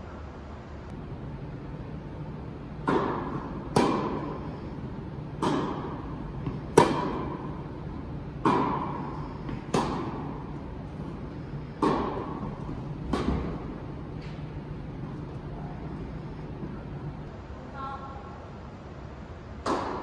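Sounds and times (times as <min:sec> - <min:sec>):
rackets hitting tennis ball: 0:02.7 - 0:17.2, 0:19.6 - 0:20.0.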